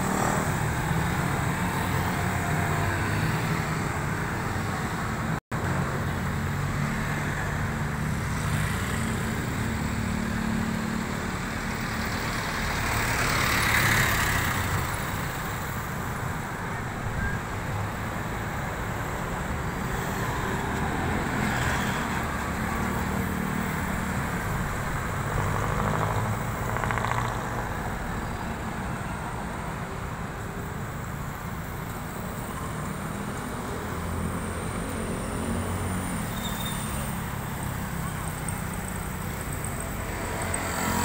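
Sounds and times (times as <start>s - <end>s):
car engines and tyres: 0.0s - 41.0s
car passing by: 39.5s - 41.0s.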